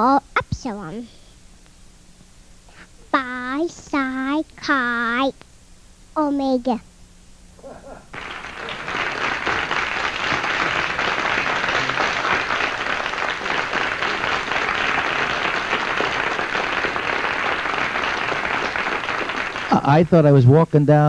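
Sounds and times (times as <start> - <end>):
audience applauding: 8.1 - 20.6.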